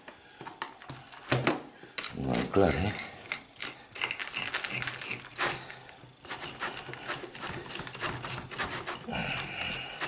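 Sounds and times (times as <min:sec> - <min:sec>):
rake scratching through soil: 0:04.7 - 0:09.1.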